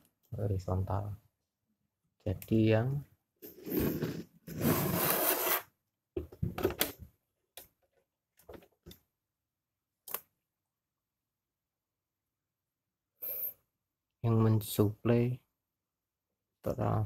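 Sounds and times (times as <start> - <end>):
circuit board rubbing and scraping: 3.5 - 5.7.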